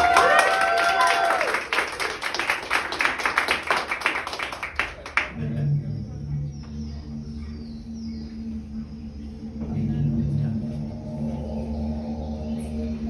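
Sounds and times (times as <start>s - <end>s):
audience clapping: 0.0s - 5.4s
low background music drone: 0.0s - 13.0s.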